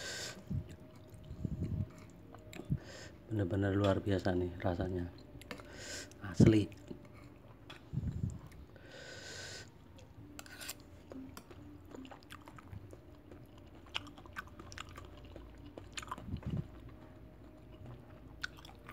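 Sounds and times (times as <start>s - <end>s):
faint chewing: 0.5s - 2.8s, 9.7s - 18.9s.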